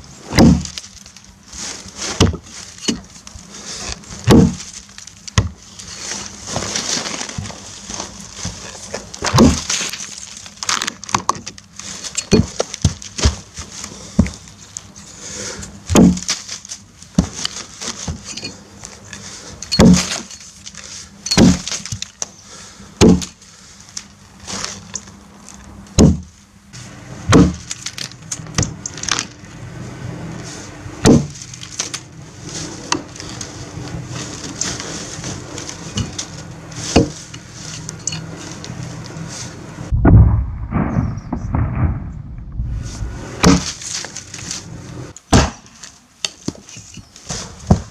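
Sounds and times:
axe chopping into log: 0.3s - 0.8s, 2.2s - 3.0s, 4.2s - 4.7s, 9.3s - 9.7s, 15.9s - 16.3s, 19.8s - 20.2s, 21.4s - 21.7s, 23.0s - 23.4s, 26.0s - 26.3s, 27.3s - 27.7s, 31.0s - 31.4s, 37.0s - 37.2s, 43.4s - 43.8s, 45.3s - 45.7s
faint low hum: 39.9s - 44.1s.

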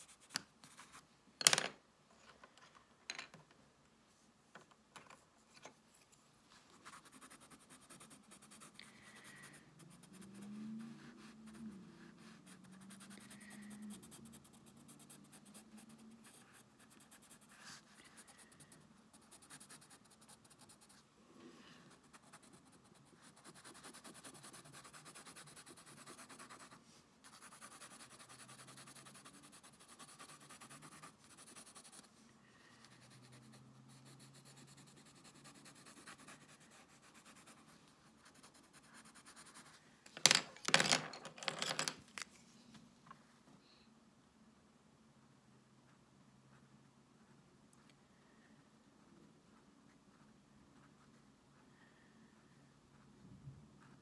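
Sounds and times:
pencil scratching on paper: 6.6s - 21.0s, 21.8s - 39.8s
pencils clattering: 40.1s - 42.3s.

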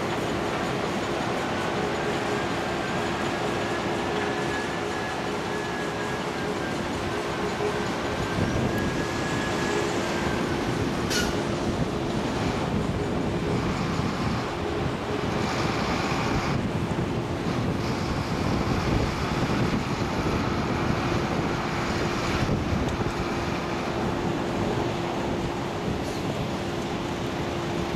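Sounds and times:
dump truck diesel engine running: 0.0s - 27.9s
wind on microphone: 8.0s - 27.9s.

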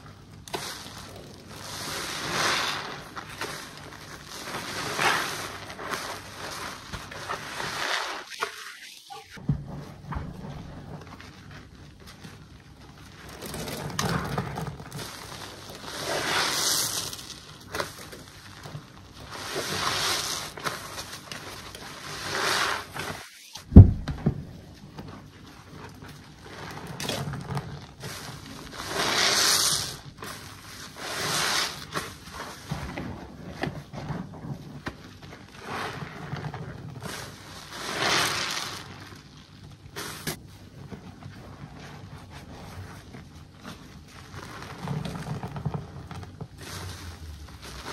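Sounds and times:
wet sponge squelching: 0.0s - 47.9s
sharp thump: 23.7s - 24.5s.

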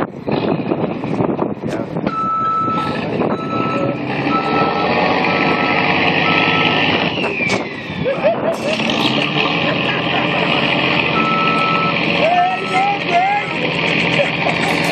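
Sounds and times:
vehicle engine noise: 0.0s - 14.9s
reversing alarm beeping: 2.1s - 7.6s, 11.1s - 13.0s.

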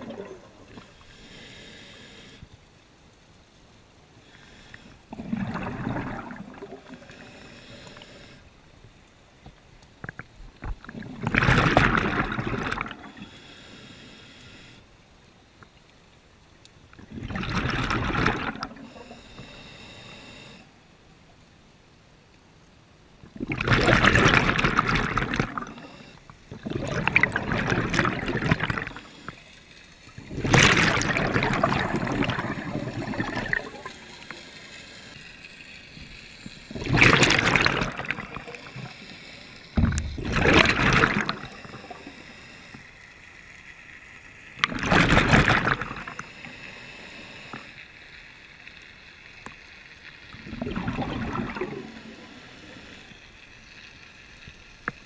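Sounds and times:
exhaled bubbles bursting underwater: 0.0s - 0.9s, 5.1s - 7.0s, 10.2s - 13.2s, 17.0s - 18.9s, 23.3s - 25.8s, 26.5s - 29.0s, 30.2s - 34.0s, 36.7s - 38.9s, 39.8s - 42.0s, 44.6s - 46.2s, 50.3s - 52.3s
regulator hiss: 0.6s - 2.5s, 6.9s - 8.6s, 13.1s - 15.0s, 18.8s - 20.8s, 38.1s - 39.8s, 41.3s - 43.3s, 45.9s - 48.2s.

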